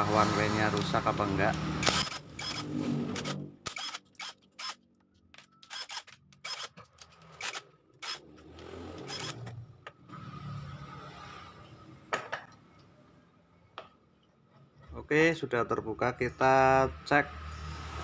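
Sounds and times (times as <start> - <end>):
cordless drill motor running: 0.7 - 4.8, 5.6 - 9.5.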